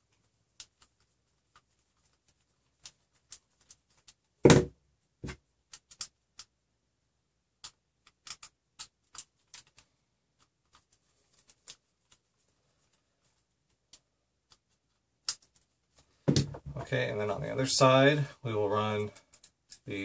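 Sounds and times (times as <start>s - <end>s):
knock on plastic: 4.4s - 5.4s, 16.3s - 16.8s.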